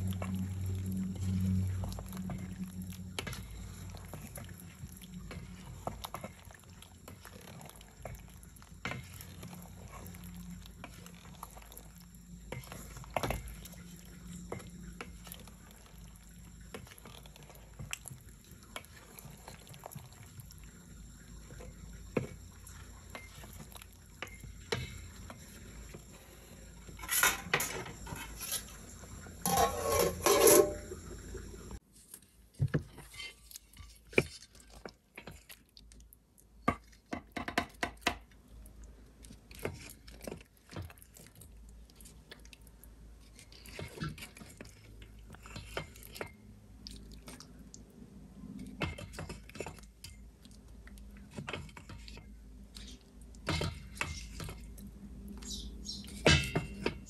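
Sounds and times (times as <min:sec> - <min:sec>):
cutlery clinking on plates: 0:29.5 - 0:30.8.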